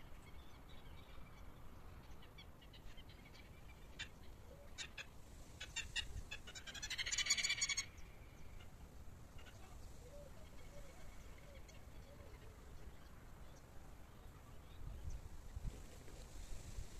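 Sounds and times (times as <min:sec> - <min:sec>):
lapwing calling: 0:02.2 - 0:13.0.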